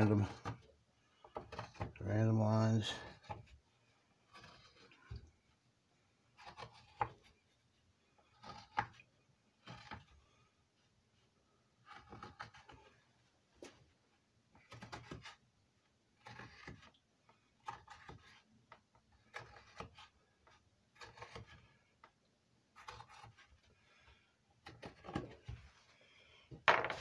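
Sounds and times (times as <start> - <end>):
pencil scratching on wood: 0.0 - 2.2, 4.2 - 5.3, 11.8 - 13.0, 16.2 - 17.0, 19.2 - 22.0, 22.8 - 23.6.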